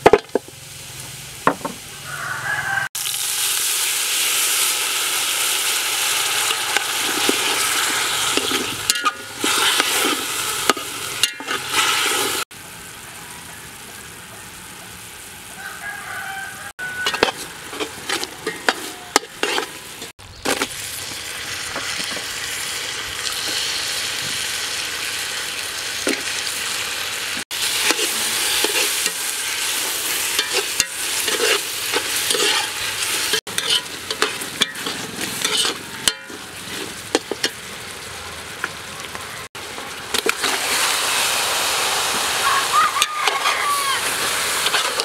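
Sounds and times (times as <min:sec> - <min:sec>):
sizzling in hot oil: 0:00.0 - 0:45.0
metal spoon scraping pot: 0:06.7 - 0:12.4, 0:17.0 - 0:20.7, 0:27.8 - 0:37.6.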